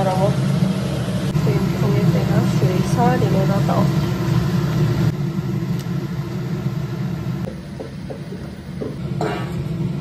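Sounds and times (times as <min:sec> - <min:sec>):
gas stove burner humming: 0:00.0 - 0:10.0.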